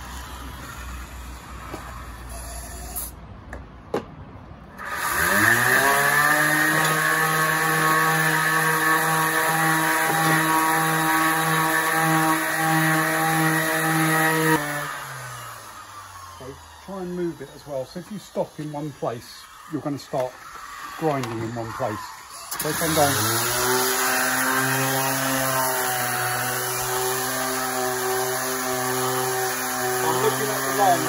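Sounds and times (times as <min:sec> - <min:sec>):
electric sander whining: 0:04.8 - 0:31.0.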